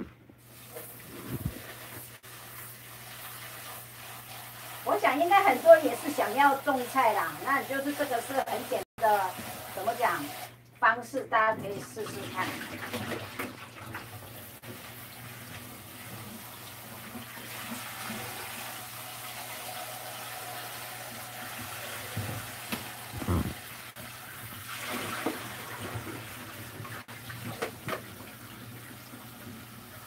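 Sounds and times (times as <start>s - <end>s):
tap water running: 0.4s - 30.0s
water splashing into sink: 11.6s - 30.0s.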